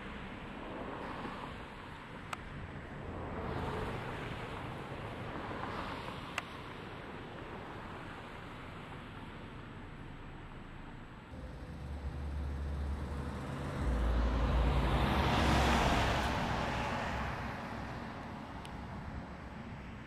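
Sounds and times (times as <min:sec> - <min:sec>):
car passing by: 0:02.6 - 0:08.9, 0:11.3 - 0:20.0.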